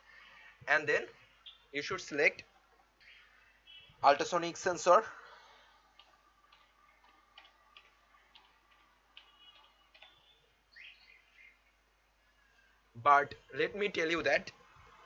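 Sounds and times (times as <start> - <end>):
keyboard keys clicking: 6.0 - 10.2.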